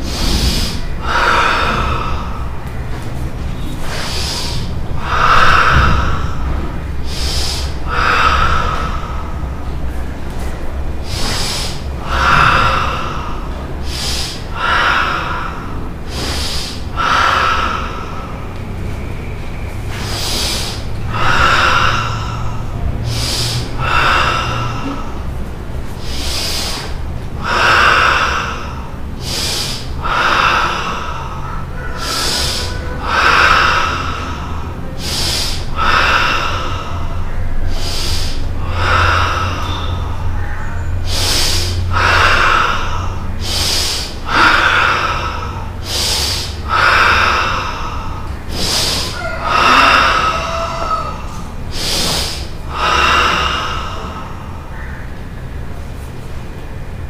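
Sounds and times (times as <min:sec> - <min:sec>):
person breathing forcefully: 0:00.0 - 0:57.0.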